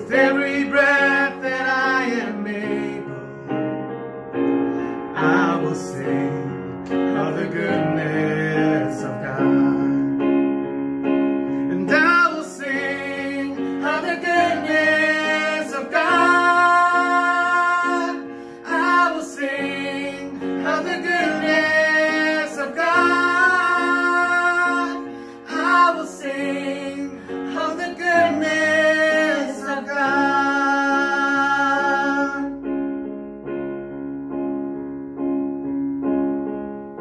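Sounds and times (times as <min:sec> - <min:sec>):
keyboard chords: 0:00.0 - 0:37.0
woman and man singing: 0:11.7 - 0:32.6.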